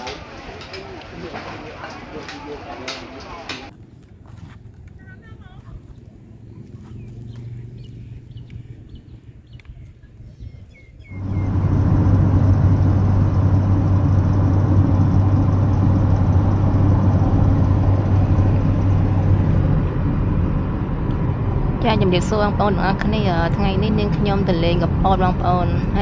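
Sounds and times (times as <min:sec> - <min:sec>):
car road and engine noise: 0:01.7 - 0:26.0.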